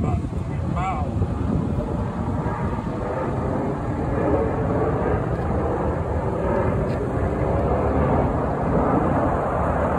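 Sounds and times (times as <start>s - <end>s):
distant jet noise: 0.0s - 9.9s.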